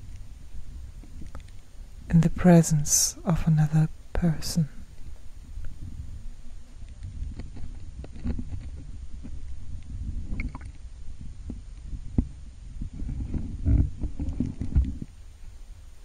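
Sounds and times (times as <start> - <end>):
small underwater clicks: 1.0 - 1.7, 6.8 - 10.8
muffled underwater rumble: 5.0 - 15.1.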